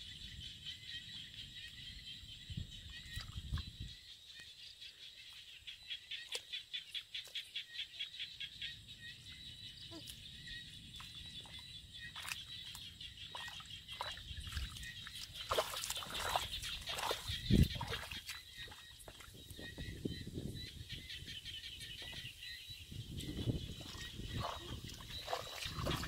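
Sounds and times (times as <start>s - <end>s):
feet squelching in mud: 13.3s - 19.4s, 23.8s - 26.0s.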